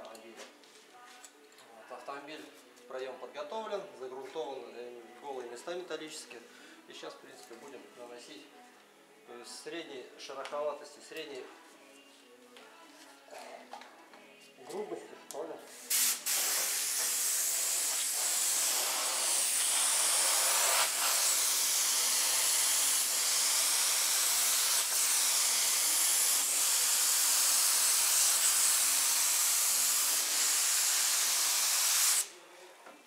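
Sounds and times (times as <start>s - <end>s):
spray gun hissing: 15.8s - 32.3s.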